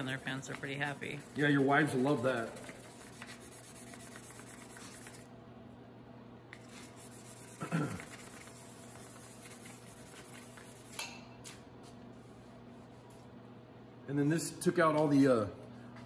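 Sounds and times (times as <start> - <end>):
sandpaper rubbing on metal: 0.9 - 5.2, 6.6 - 10.9.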